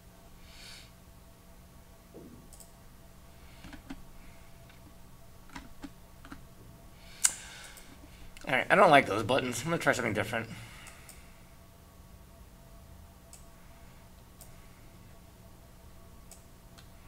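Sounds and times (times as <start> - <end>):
faint steady hum: 0.0 - 17.0
computer mouse clicks: 2.5 - 2.7.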